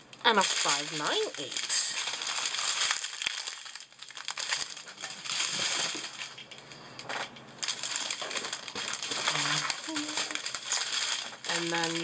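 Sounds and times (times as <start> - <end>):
plastic bags rustling: 0.2 - 12.0.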